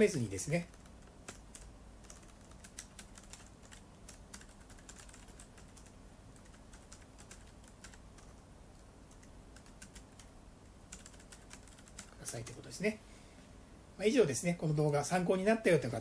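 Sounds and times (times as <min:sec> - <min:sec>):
typing on keyboard: 0:00.6 - 0:08.4, 0:09.1 - 0:10.3, 0:10.9 - 0:12.6.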